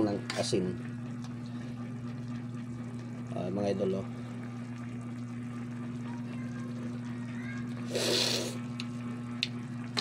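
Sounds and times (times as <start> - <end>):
sauce simmering: 0.8 - 3.3, 4.0 - 9.8
person slurping broth: 7.8 - 8.6.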